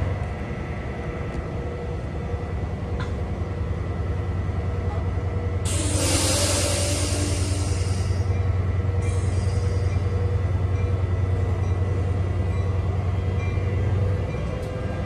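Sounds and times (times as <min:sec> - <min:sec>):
train wheels rumbling on rail: 0:00.0 - 0:15.0
loud hiss of air: 0:05.7 - 0:08.3.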